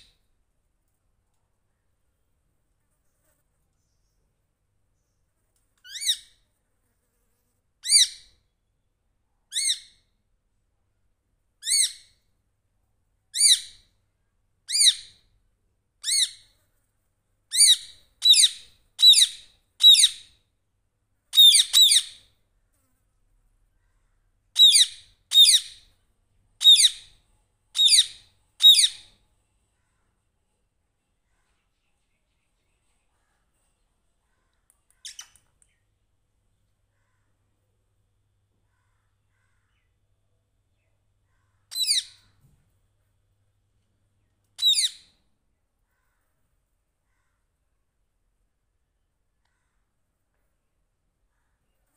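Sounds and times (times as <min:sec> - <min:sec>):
parakeet screeching: 0:17.5 - 0:20.2, 0:21.4 - 0:22.2, 0:24.6 - 0:25.8, 0:26.6 - 0:27.1, 0:27.8 - 0:29.1, 0:41.7 - 0:42.2, 0:44.6 - 0:45.0.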